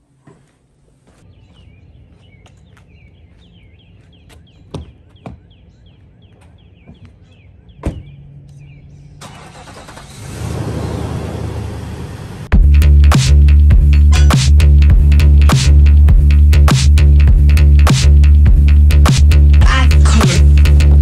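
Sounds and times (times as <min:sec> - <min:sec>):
birds chirping: 0:00.5 - 0:11.7
truck engine humming: 0:03.2 - 0:21.0
truck door shutting: 0:07.8 - 0:08.2.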